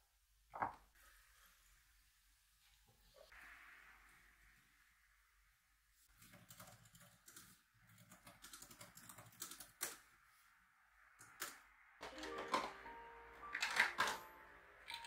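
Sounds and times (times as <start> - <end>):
laptop keyboard typing: 6.2 - 10.0, 13.5 - 14.3.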